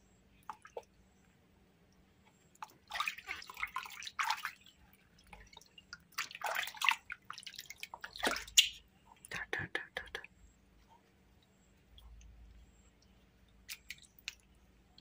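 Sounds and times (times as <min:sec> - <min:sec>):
water splashing in a basin: 0:00.3 - 0:00.9, 0:02.5 - 0:08.9, 0:13.4 - 0:14.6.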